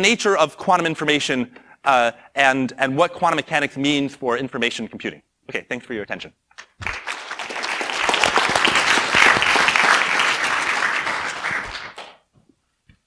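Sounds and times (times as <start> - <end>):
audience applauding: 6.6 - 12.2.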